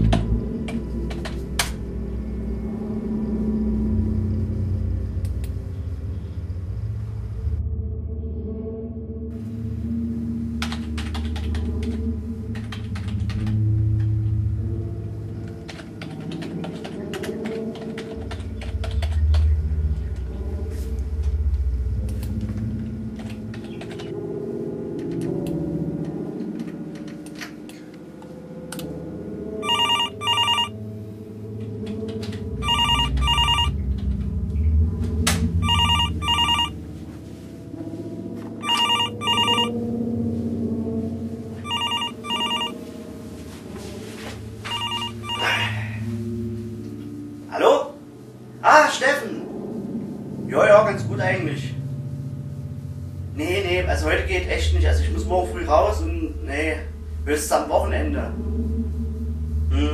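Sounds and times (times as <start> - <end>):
low background drone: 0.0 - 59.9
keyboard typing: 10.6 - 13.6, 29.6 - 30.7, 32.6 - 33.7, 35.6 - 36.7, 38.6 - 39.7, 41.6 - 42.7, 44.7 - 45.5
telephone ringing: 29.6 - 30.7, 32.6 - 33.8, 35.6 - 36.8, 38.6 - 39.8, 41.6 - 42.8, 44.6 - 45.6.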